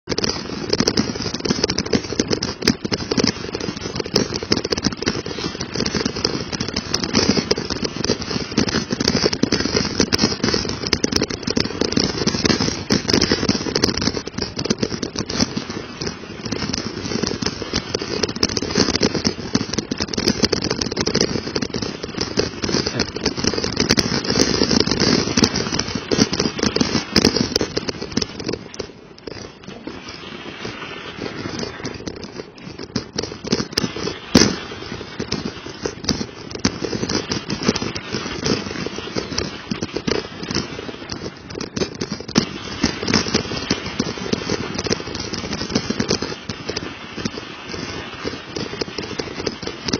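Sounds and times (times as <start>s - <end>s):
bike tyres crackling over slush: 0.0s - 49.9s.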